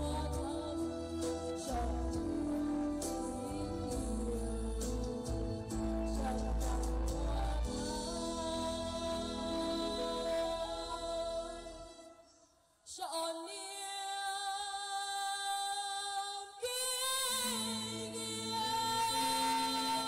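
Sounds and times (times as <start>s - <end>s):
backing track with bass: 0.0s - 11.8s
girl singing into a microphone: 0.0s - 12.2s, 12.9s - 20.0s.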